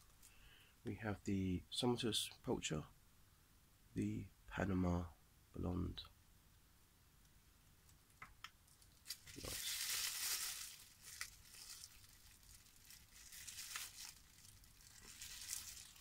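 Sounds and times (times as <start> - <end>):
bubble wrap ripping and crinkling: 8.7 - 16.0.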